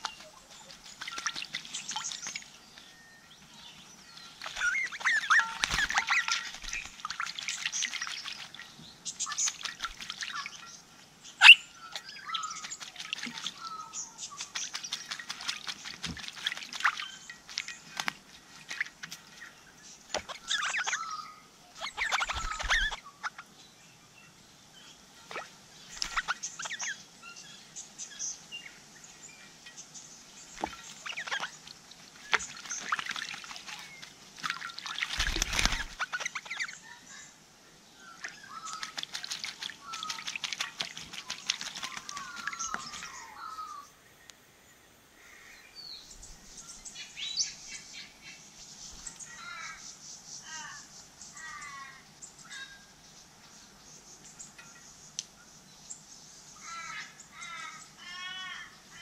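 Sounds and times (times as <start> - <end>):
birds splashing in water: 0.0 - 23.5, 25.2 - 27.1, 30.3 - 43.8.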